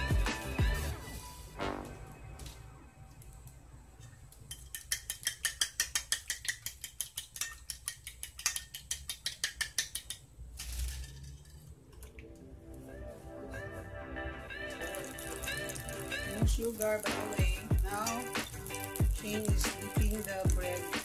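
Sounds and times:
fork beating eggs on a plate: 4.4s - 10.2s, 15.2s - 21.0s.

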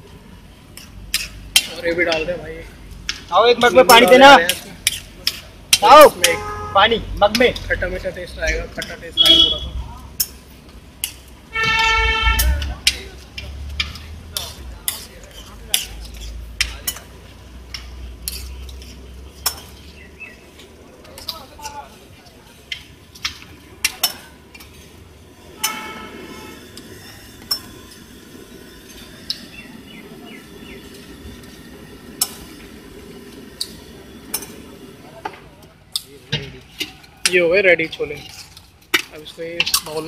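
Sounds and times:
low hum of food stall: 0.0s - 40.0s
metal spatula clanking on griddle: 0.8s - 2.4s, 11.0s - 13.1s, 13.7s - 19.9s, 22.6s - 24.9s, 25.5s - 26.0s.

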